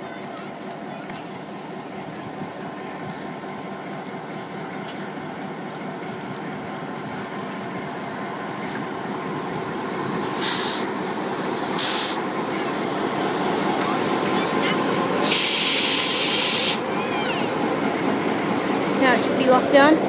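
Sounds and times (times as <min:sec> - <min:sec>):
diesel locomotive idling: 0:00.0 - 0:20.0
compressed air hissing: 0:09.6 - 0:16.8.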